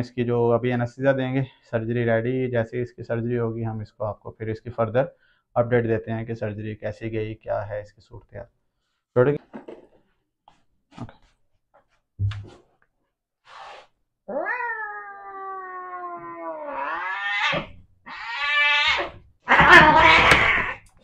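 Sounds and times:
cat yowling: 14.3 - 20.9.

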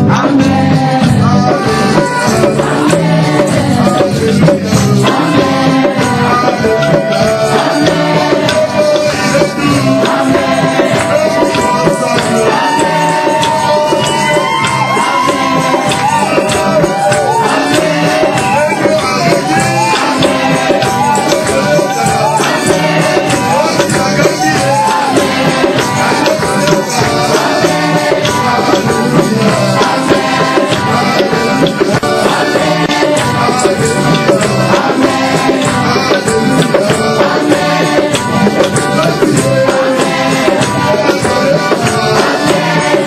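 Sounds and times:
people singing worship music: 0.0 - 43.0
shaker percussion beat: 0.0 - 43.0.

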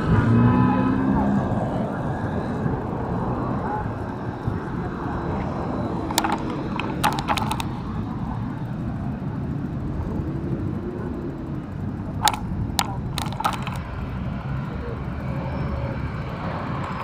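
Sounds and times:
road traffic rumble: 0.0 - 17.0
sharp clicks or knocks: 6.1 - 7.8, 12.2 - 13.9.

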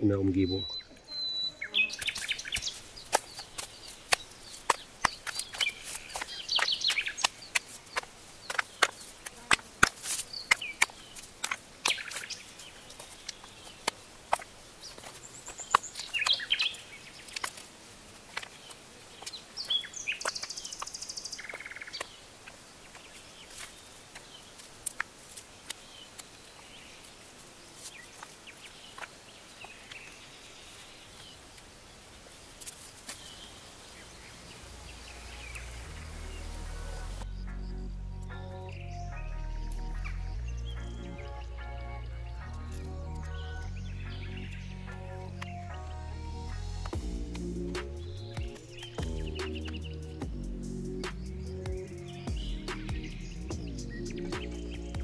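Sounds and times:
small birds chirping: 0.0 - 55.0
rocks knocking together: 2.0 - 17.7.

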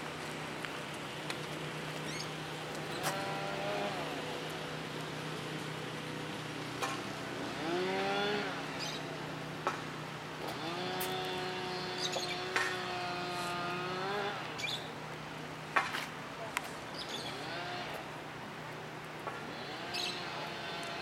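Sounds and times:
birds chirping: 2.0 - 3.2, 11.6 - 13.0, 14.2 - 14.9, 16.9 - 17.6, 19.8 - 20.4
small engine revving: 2.9 - 4.3, 7.4 - 8.9, 10.4 - 14.8, 17.2 - 18.0, 19.5 - 21.0.

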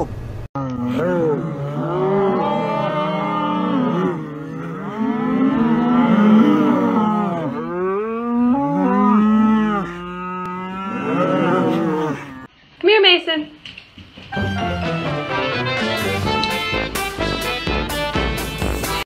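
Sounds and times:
cattle mooing: 0.6 - 12.5.

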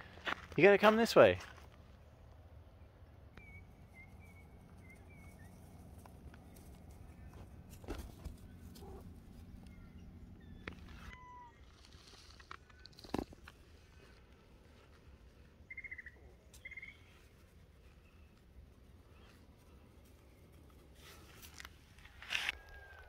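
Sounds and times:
soft high chirps: 15.7 - 17.2.

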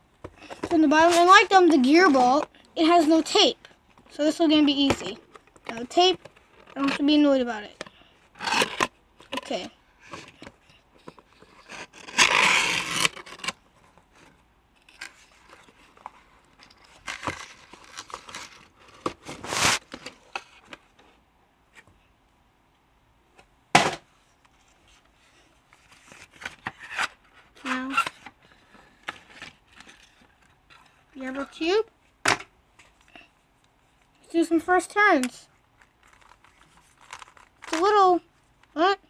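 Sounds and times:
cardboard and paper rustling: 0.2 - 3.6, 4.4 - 21.0, 24.5 - 31.8, 35.8 - 38.1.

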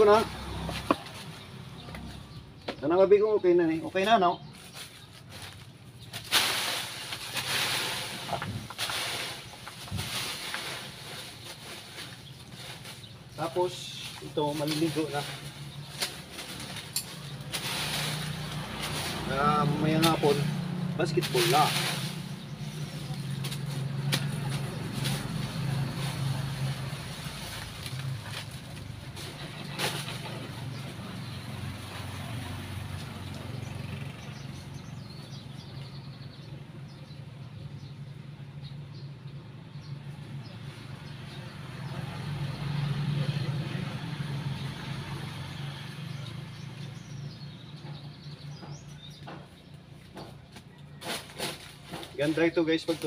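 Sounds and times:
dry leaves rustling and crackling: 0.0 - 2.3, 3.5 - 36.1, 48.8 - 53.0
vehicle engine humming: 0.0 - 53.0
bird chirping: 33.0 - 44.8, 45.5 - 51.0.

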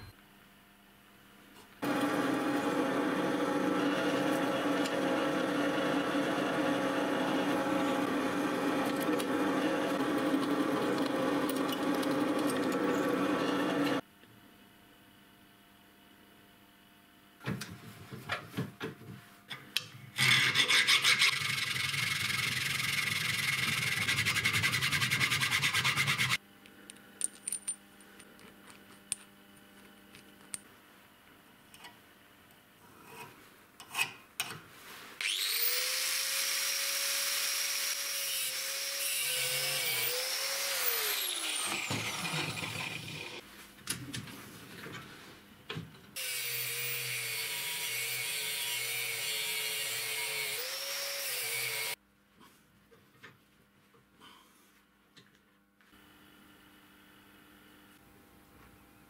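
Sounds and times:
angle grinder cutting steel: 1.8 - 14.0, 35.2 - 43.4, 46.2 - 52.0
angle grinder whine: 1.8 - 14.0, 35.2 - 43.4.

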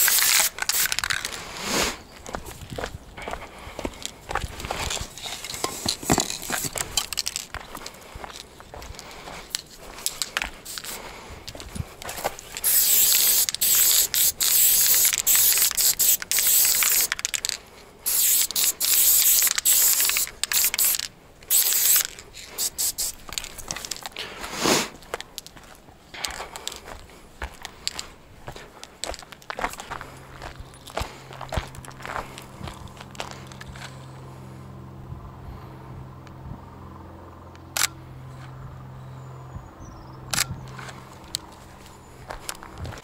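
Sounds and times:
spray paint can hissing: 0.0 - 1.9, 10.1 - 11.0, 12.4 - 24.0.

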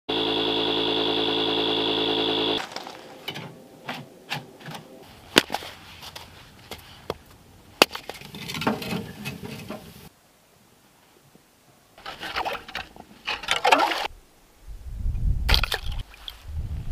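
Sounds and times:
electric air pump humming: 0.1 - 3.3
wood clattering into stove: 8.0 - 10.0.

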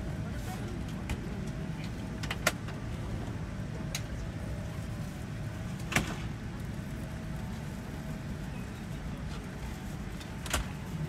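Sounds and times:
airliner cabin hum: 0.0 - 11.0.

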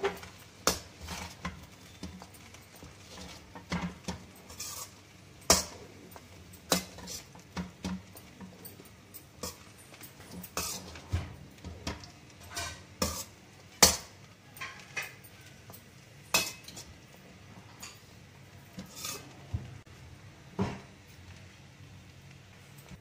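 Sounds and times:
metal spoon scraping a pan: 0.0 - 19.5.

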